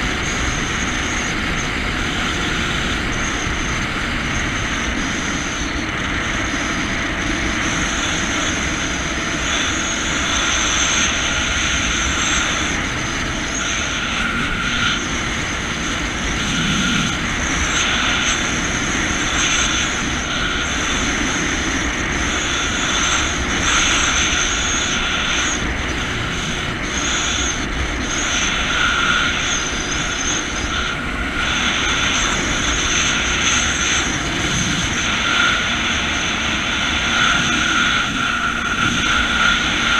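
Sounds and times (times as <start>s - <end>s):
jet ski engine running: 0.0s - 39.9s.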